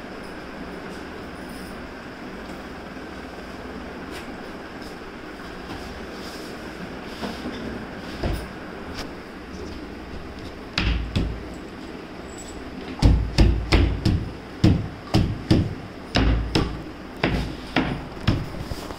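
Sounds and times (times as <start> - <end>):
hammer blows on wooden panels: 10.7 - 11.5, 13.0 - 18.6.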